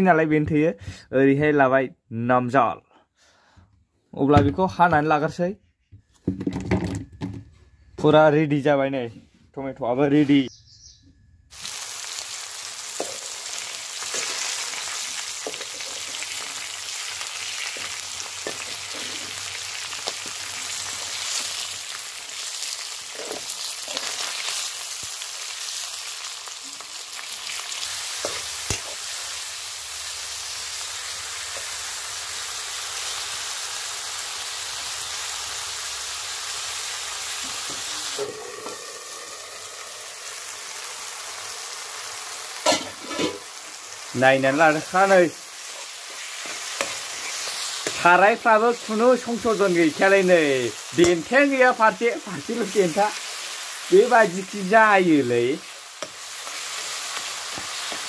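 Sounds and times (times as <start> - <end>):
food sizzling in hot oil: 11.5 - 58.0
metal ladle scraping pan: 18.4 - 19.5, 42.6 - 43.5.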